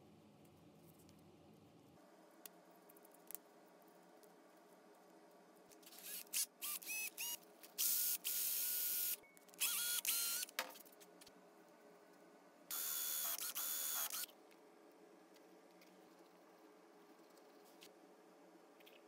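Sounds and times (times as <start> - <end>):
electric drill whining: 6.0 - 10.5, 12.7 - 14.3.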